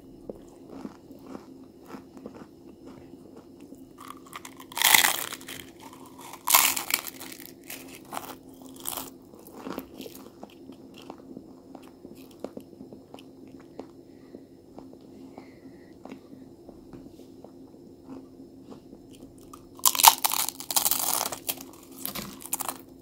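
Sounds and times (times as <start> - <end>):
crunchy chewing: 0.2 - 16.4, 17.4 - 23.0
tortilla chip crunching: 0.7 - 3.0, 4.0 - 11.2, 19.4 - 22.9.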